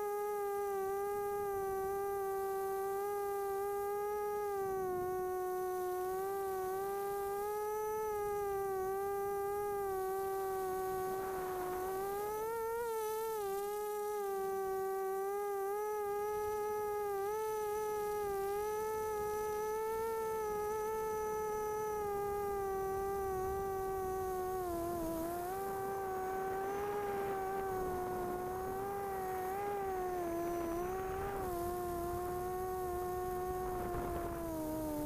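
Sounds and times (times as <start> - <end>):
quadcopter motors whining: 0.0 - 35.0
rush of air noise: 18.6 - 35.0.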